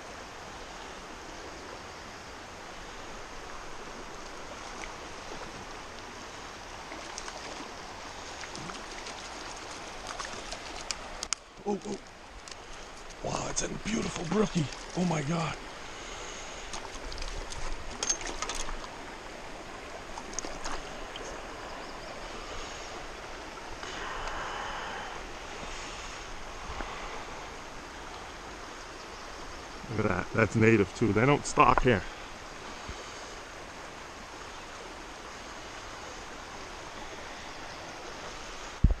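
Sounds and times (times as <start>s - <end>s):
river running over rocks: 0.0s - 39.0s
water splashes: 2.8s - 28.3s.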